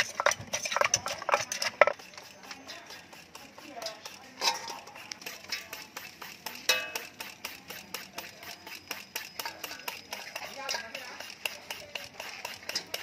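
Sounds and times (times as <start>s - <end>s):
shredder scraping papaya: 0.0s - 13.0s
metallic clink on bowl: 6.5s - 7.8s, 8.4s - 13.0s.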